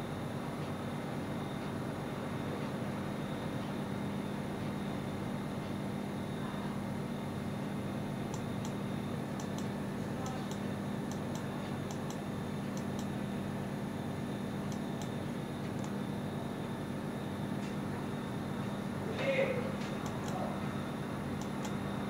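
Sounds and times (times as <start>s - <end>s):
low electrical hum: 0.0s - 22.0s
faint high ticks: 9.4s - 13.1s.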